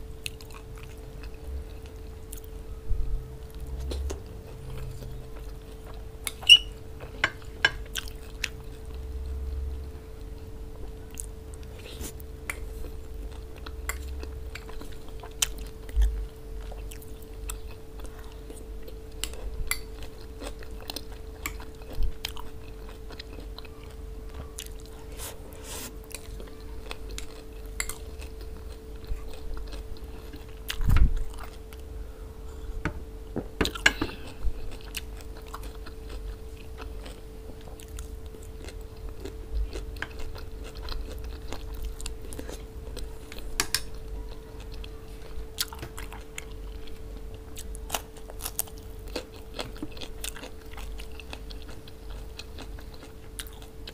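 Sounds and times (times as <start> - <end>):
faint steady hum: 0.0 - 53.9
crunchy chewing and biting: 33.6 - 53.9.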